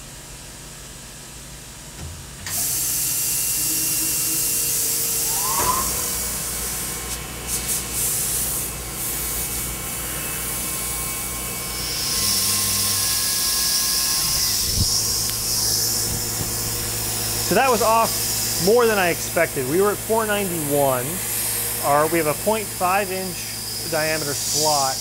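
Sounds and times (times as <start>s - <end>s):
spindle whine: 3.2s - 7.3s, 13.9s - 23.2s
high hiss: 3.4s - 7.7s
low hum: 3.6s - 7.2s.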